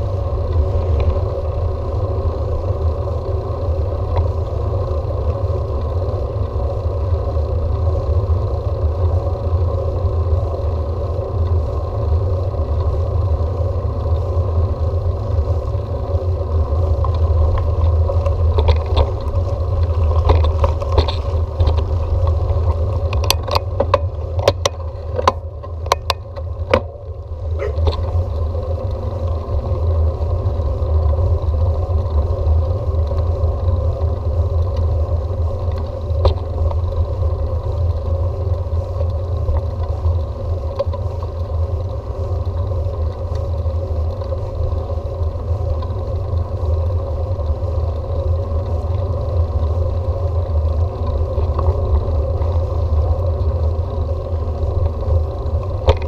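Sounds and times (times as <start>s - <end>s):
bicycle road rumble: 0.0s - 56.0s
sharp clicks and rattles: 16.7s - 32.3s, 48.6s - 56.0s.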